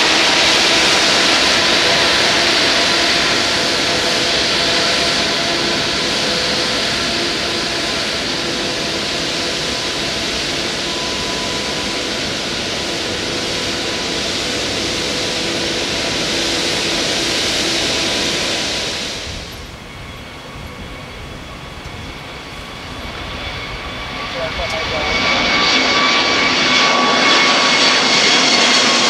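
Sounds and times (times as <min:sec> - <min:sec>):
faint engine whine: 0:00.0 - 0:29.0
jet engines rushing: 0:00.0 - 0:29.0.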